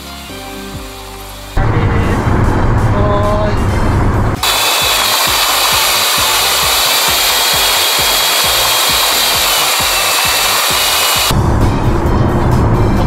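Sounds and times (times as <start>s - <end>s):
thin high whine: 1.6s - 11.3s
road noise inside car: 1.6s - 13.0s.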